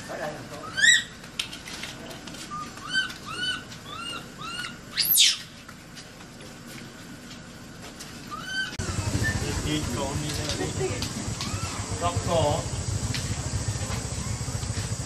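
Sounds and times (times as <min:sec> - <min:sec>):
baby monkey crying: 0:00.6 - 0:01.1, 0:02.5 - 0:05.5, 0:08.3 - 0:09.4, 0:11.4 - 0:11.9.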